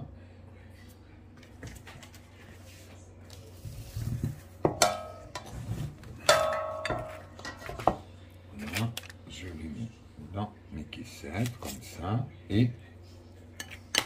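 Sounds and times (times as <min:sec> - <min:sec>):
metal kitchenware clinking: 0:04.7 - 0:05.6, 0:06.2 - 0:08.0.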